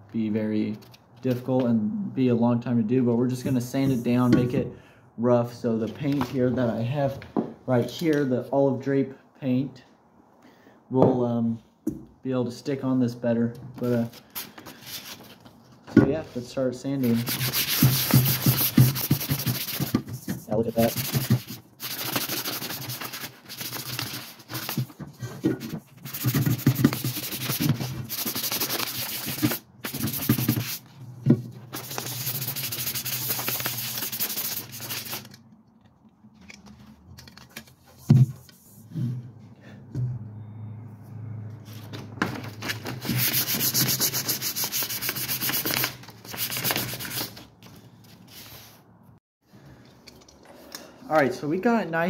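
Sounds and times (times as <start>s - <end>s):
sandpaper sanding painted metal: 17.0s - 24.9s, 25.8s - 30.8s, 31.7s - 35.3s, 43.0s - 47.4s.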